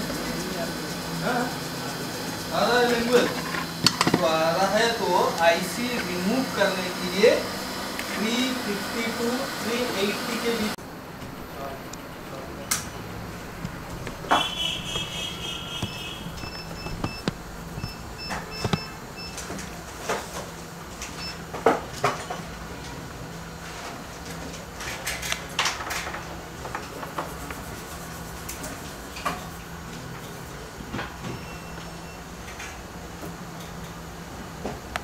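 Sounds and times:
steady low hum: 0:00.0 - 0:21.6
short high beeps: 0:14.4 - 0:17.2.

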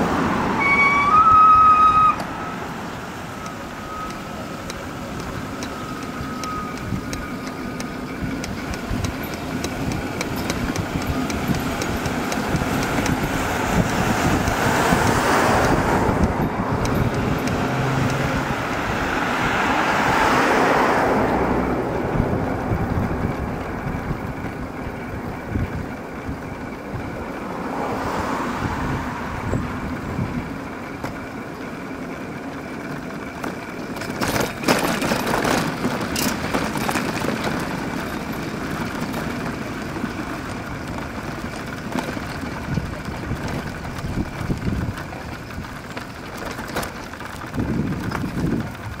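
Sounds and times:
road traffic noise: 0:00.0 - 0:49.0
sharp clicks: 0:03.4 - 0:13.5, 0:15.6 - 0:18.4.

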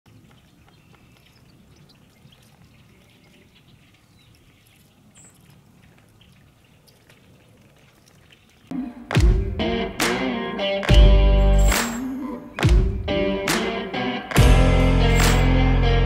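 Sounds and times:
soft ticks and rustles: 0:00.1 - 0:08.7.

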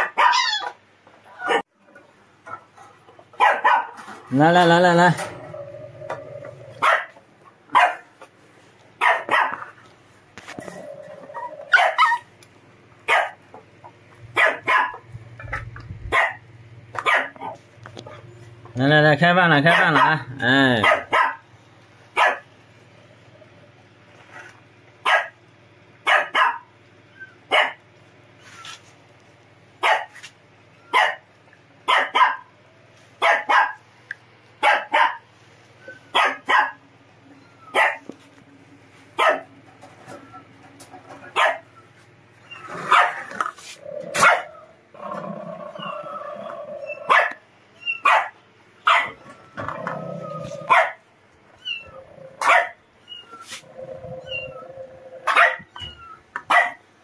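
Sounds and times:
dog barking: 0:00.0 - 0:00.7, 0:01.4 - 0:01.6, 0:03.4 - 0:04.0, 0:06.8 - 0:08.1, 0:09.0 - 0:09.7, 0:11.7 - 0:12.2, 0:13.1 - 0:13.4, 0:14.4 - 0:15.0, 0:16.1 - 0:16.4, 0:17.0 - 0:17.6, 0:19.7 - 0:20.2, 0:20.8 - 0:21.4, 0:22.2 - 0:22.5, 0:25.0 - 0:25.4, 0:26.0 - 0:26.7, 0:27.5 - 0:27.8, 0:29.8 - 0:30.2, 0:30.9 - 0:31.2, 0:31.9 - 0:32.5, 0:33.2 - 0:33.8, 0:34.6 - 0:35.3, 0:36.1 - 0:36.8, 0:37.7 - 0:38.0, 0:39.2 - 0:39.5, 0:41.3 - 0:41.7, 0:42.8 - 0:43.3, 0:44.2 - 0:44.6, 0:47.1 - 0:47.4, 0:48.0 - 0:49.2, 0:50.7 - 0:51.0, 0:52.4 - 0:52.8, 0:55.2 - 0:55.7, 0:56.5 - 0:56.8.

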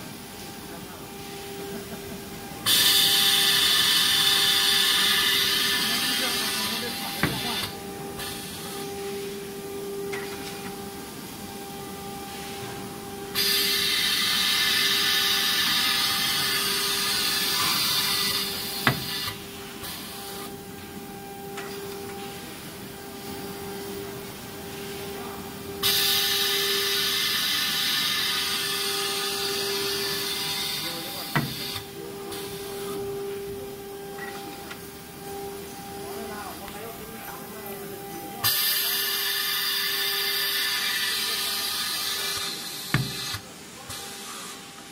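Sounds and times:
steady machine hum: 0:00.0 - 0:44.9
loud hissing whir: 0:25.0 - 0:37.0, 0:38.4 - 0:44.8.

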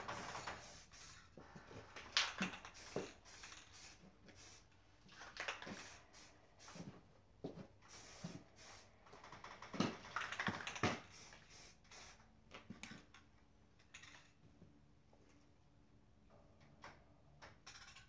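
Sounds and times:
spray can hissing: 0:00.1 - 0:01.3, 0:02.4 - 0:04.7, 0:05.5 - 0:06.9, 0:07.9 - 0:08.9, 0:10.8 - 0:12.2.

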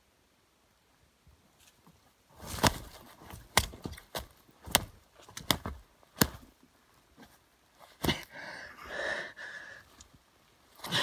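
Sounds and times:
rustling: 0:01.5 - 0:08.3
knife chopping ground: 0:02.4 - 0:06.6, 0:07.9 - 0:08.3.

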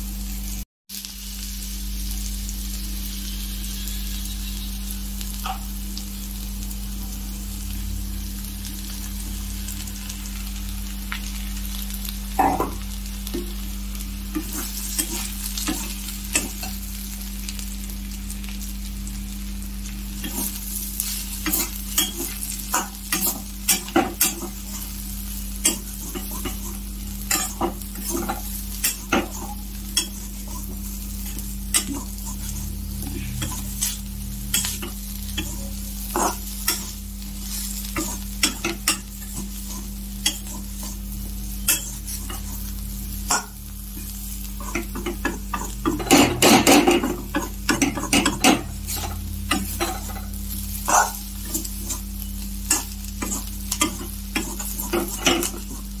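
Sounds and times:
food sizzling in a pan: 0:00.0 - 0:56.0
spatula scraping a pan: 0:14.3 - 0:16.8, 0:20.2 - 0:56.0.

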